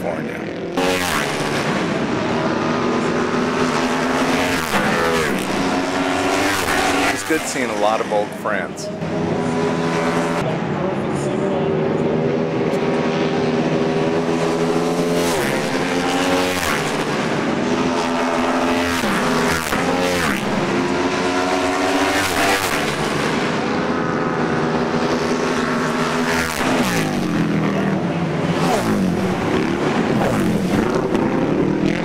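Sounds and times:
racing motorcycle engines: 0:00.0 - 0:32.0.

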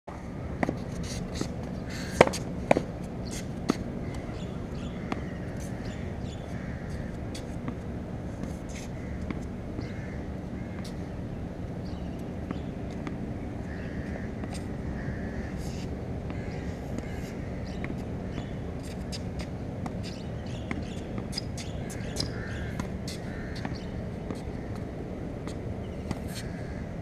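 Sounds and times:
steady background noise: 0:00.1 - 0:27.0
tennis ball hit with racket: 0:02.1 - 0:04.3.

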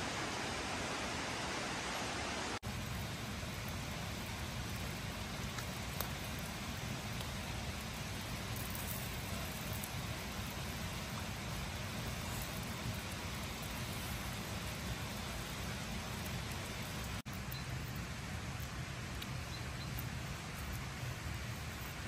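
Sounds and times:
flowing water rushing: 0:00.0 - 0:17.2.

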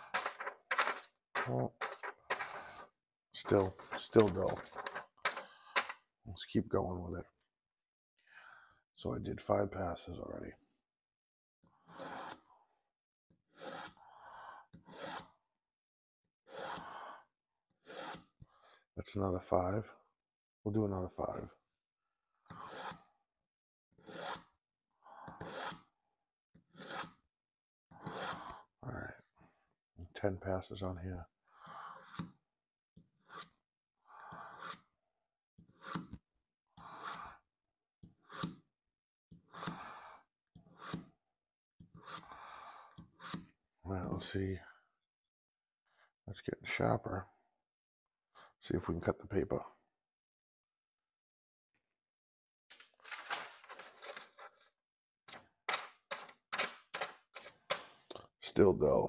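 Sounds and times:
knife rasping through sharpener: 0:11.9 - 0:12.4, 0:13.5 - 0:14.0, 0:14.9 - 0:15.3, 0:16.5 - 0:16.9, 0:17.8 - 0:18.4, 0:22.5 - 0:23.1, 0:24.0 - 0:24.5, 0:26.7 - 0:27.2, 0:28.0 - 0:28.5, 0:33.2 - 0:33.6, 0:34.5 - 0:34.9, 0:35.7 - 0:36.2, 0:36.9 - 0:37.3, 0:39.5 - 0:39.8, 0:40.6 - 0:41.1, 0:41.9 - 0:42.4, 0:43.0 - 0:43.5
knife scraping through sharpener: 0:13.5 - 0:14.0, 0:22.5 - 0:23.1, 0:26.7 - 0:27.2, 0:28.0 - 0:28.5, 0:35.7 - 0:36.2, 0:41.9 - 0:42.3, 0:43.2 - 0:43.5.

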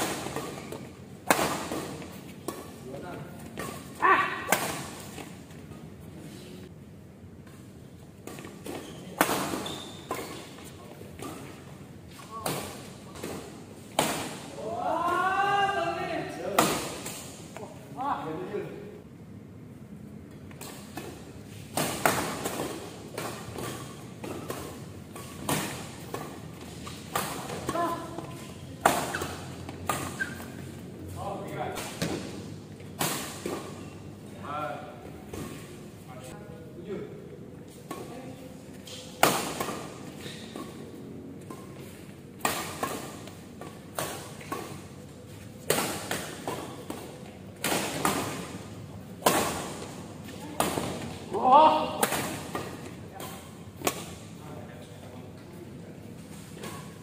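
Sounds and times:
rackets hitting shuttlecock: 0:00.0 - 0:05.4, 0:20.4 - 0:30.6, 0:38.9 - 0:45.0, 0:45.6 - 0:54.2.

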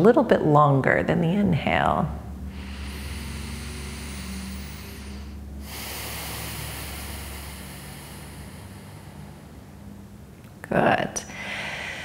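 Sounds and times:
faint low hum: 0:00.0 - 0:12.0
person breathing deeply: 0:02.3 - 0:10.3, 0:11.3 - 0:12.0.

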